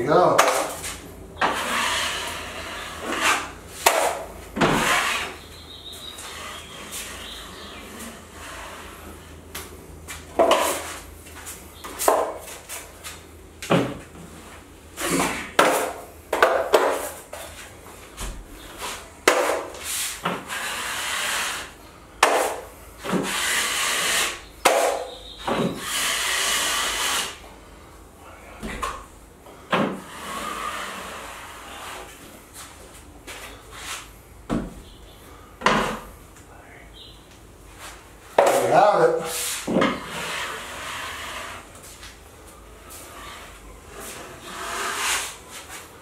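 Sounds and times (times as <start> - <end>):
drywall knife scraping: 0.4 - 9.3, 10.4 - 11.0, 15.0 - 17.5, 18.7 - 27.4, 29.9 - 32.2, 37.8 - 41.9, 42.8 - 45.9.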